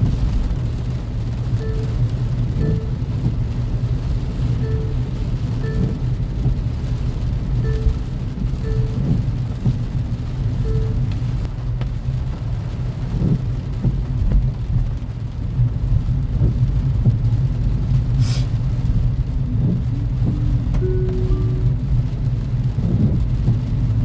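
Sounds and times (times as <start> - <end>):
road and engine rumble in car: 0.0 - 24.0
brief hiss: 18.2 - 18.5.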